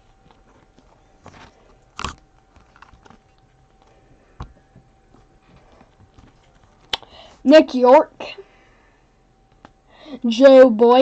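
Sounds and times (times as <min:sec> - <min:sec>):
cards and wrappers rustling: 0:00.1 - 0:07.0.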